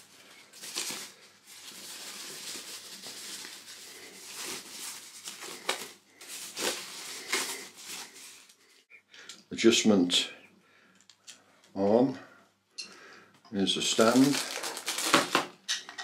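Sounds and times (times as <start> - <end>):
tissue paper crinkling: 0.0 - 8.8, 13.9 - 15.5.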